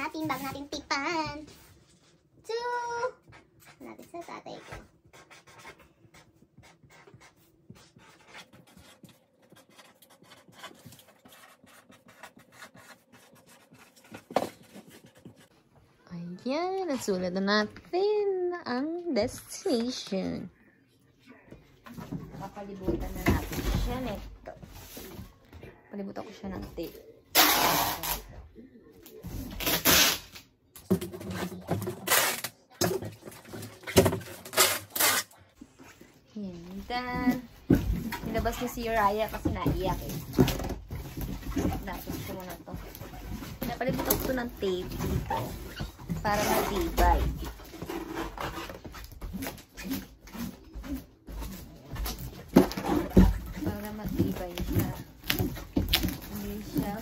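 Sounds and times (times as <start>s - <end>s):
marker pen scratching on cardboard: 3.6s - 15.5s
packing tape ripping off roll: 27.3s - 28.3s, 29.6s - 30.5s, 31.9s - 32.7s, 34.3s - 35.4s.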